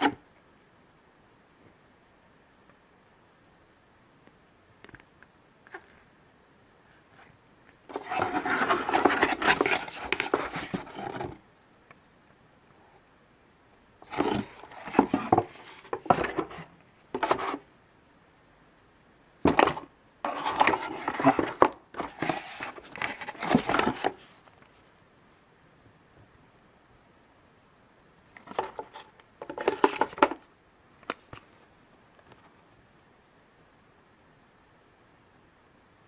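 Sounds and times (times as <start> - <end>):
paper and cardboard rustling: 7.9 - 11.4, 14.0 - 17.7, 19.4 - 24.9, 28.4 - 30.4.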